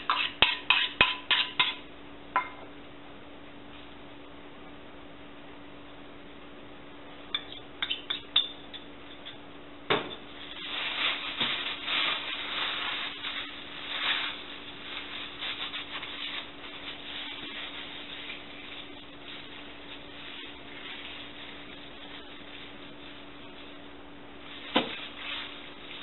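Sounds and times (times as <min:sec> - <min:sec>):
plastic bag crinkling: 0:10.3 - 0:23.8, 0:24.4 - 0:26.0.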